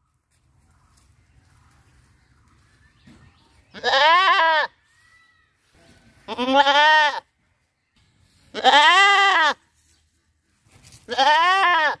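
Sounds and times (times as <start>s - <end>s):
goat bleating: 3.8s - 4.8s, 6.2s - 7.3s, 8.5s - 9.6s, 11.1s - 12.0s.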